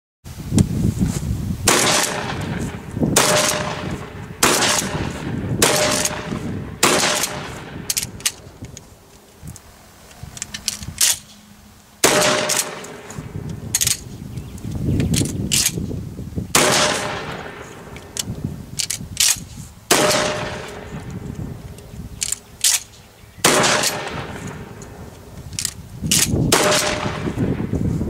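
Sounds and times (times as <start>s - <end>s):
shotgun shots: 1.7s - 8.4s, 12.0s - 13.4s, 16.5s - 18.0s, 19.9s - 21.0s, 23.4s - 24.8s, 26.1s - 27.7s
small clicks: 7.2s - 11.4s, 21.0s - 23.1s.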